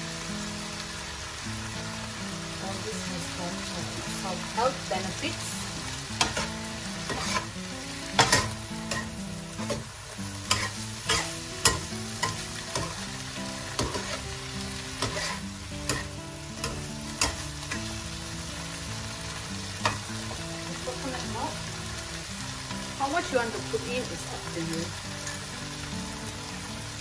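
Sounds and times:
vegetables sizzling: 0:00.0 - 0:27.0
metal turner scraping a wok: 0:06.2 - 0:07.6, 0:10.4 - 0:13.0, 0:13.8 - 0:14.2, 0:15.0 - 0:17.4.

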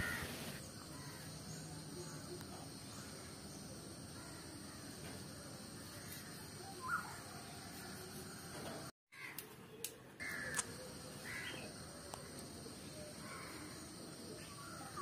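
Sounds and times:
crows cawing: 0:00.0 - 0:00.3, 0:09.1 - 0:09.4, 0:10.2 - 0:10.6, 0:11.2 - 0:11.6, 0:13.2 - 0:13.8
background hiss: 0:00.0 - 0:08.6
sharp clicks: 0:09.3 - 0:10.7.

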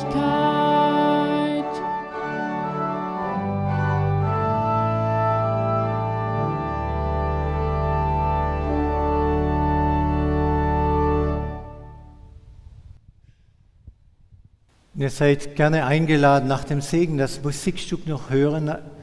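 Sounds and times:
church organ chords: 0:00.0 - 0:12.7.

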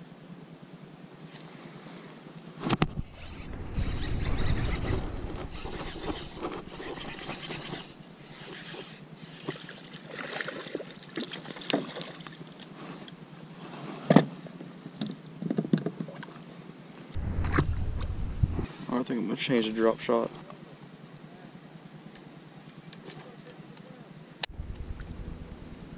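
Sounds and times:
wind on microphone: 0:02.7 - 0:08.0, 0:17.2 - 0:18.8
fish splashing in water: 0:09.4 - 0:12.6.

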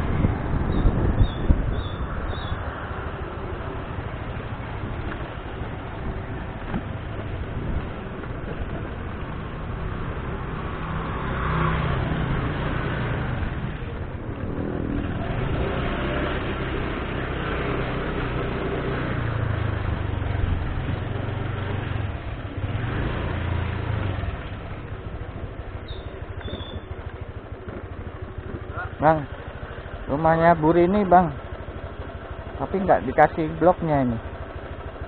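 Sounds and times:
steady rushing noise: 0:00.0 - 0:25.7
scooter engine running: 0:00.0 - 0:35.0.

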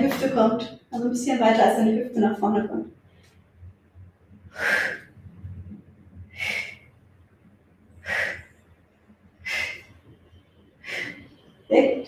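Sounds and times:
woman breathing out hard: 0:08.0 - 0:08.5, 0:10.8 - 0:11.3.

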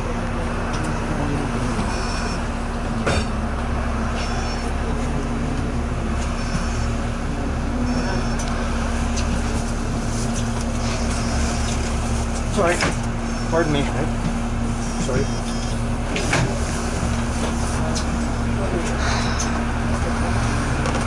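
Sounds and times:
bus diesel engine idling: 0:00.0 - 0:21.0.

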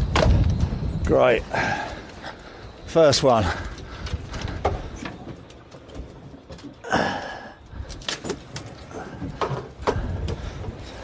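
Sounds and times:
wind: 0:00.0 - 0:11.0
knocks and clatter on boat deck: 0:04.0 - 0:06.9, 0:07.9 - 0:11.0.

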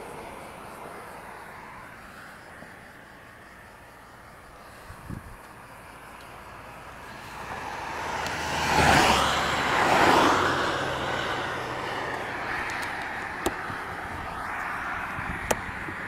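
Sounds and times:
vehicle whooshing past: 0:07.1 - 0:16.0.

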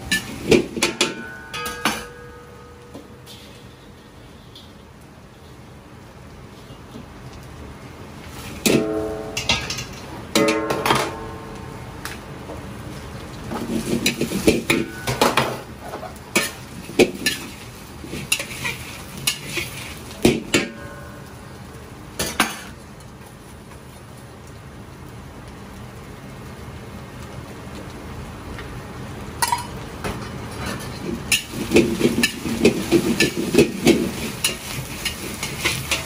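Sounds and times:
food sizzling: 0:00.0 - 0:36.0
metal spatula clanking on wok: 0:00.1 - 0:02.6, 0:08.6 - 0:11.5.

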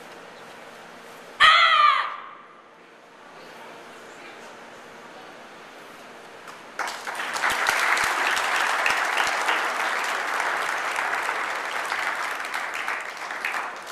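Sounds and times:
audience applauding: 0:06.8 - 0:13.9.

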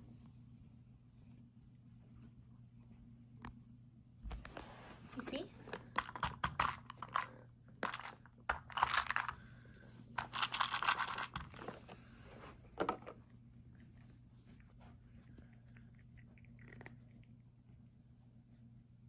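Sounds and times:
cat treats rattling in plastic toy: 0:10.2 - 0:11.6.

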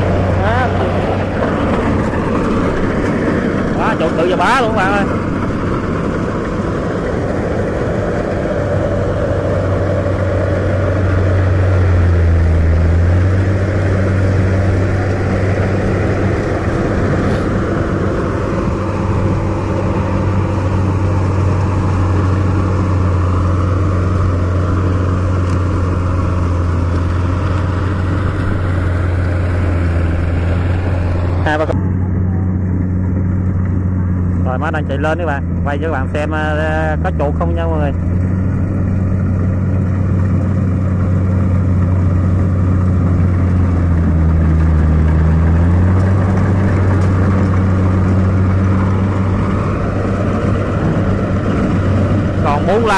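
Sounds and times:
cutting and threshing machinery: 0:00.0 - 0:52.9
diesel engine drone: 0:00.0 - 0:52.9.

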